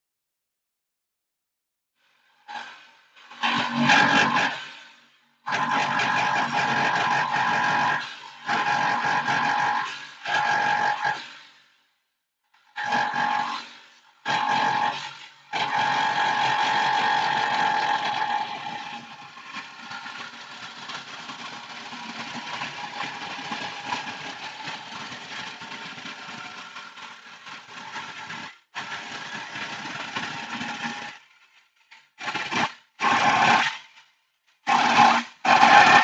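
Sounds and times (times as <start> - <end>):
power tool whining: 3.4 - 4.6, 12.8 - 31.2, 32.2 - 33.8, 34.7 - 36.0.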